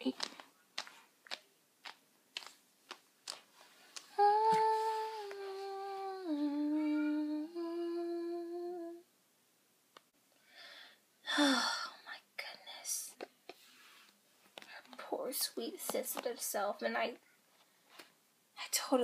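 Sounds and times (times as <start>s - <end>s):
dolls being handled: 0.0s - 5.8s
person humming: 4.0s - 9.1s.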